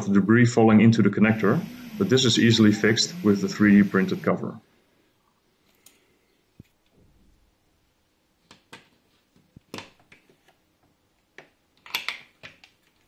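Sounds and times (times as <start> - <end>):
small plastic parts clicking: 11.4 - 13.0.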